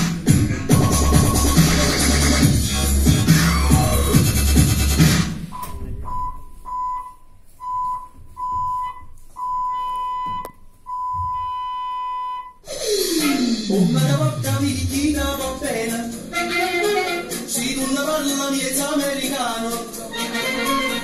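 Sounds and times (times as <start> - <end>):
electronic music: 0.0 - 6.1, 12.6 - 21.0.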